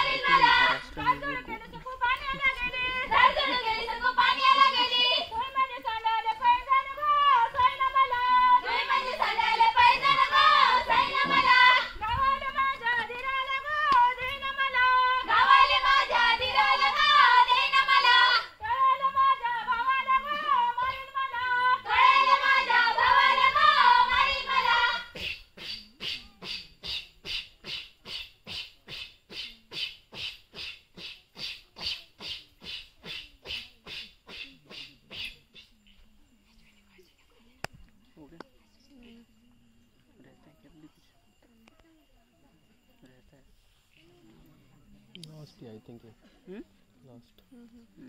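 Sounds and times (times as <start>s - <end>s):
women singing folk song: 0.0s - 25.8s
rhythmic breathy mouth puffs: 25.2s - 35.7s.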